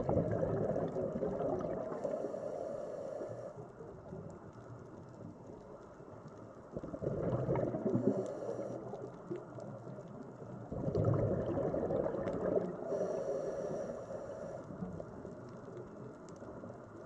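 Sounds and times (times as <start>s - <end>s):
underwater breath bubbling: 0.0s - 3.6s, 6.8s - 9.4s, 10.7s - 14.7s.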